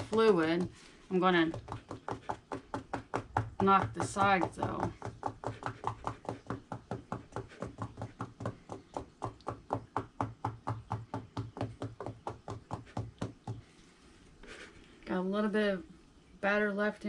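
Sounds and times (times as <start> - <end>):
fists knocking on wooden mold: 0.0 - 13.6.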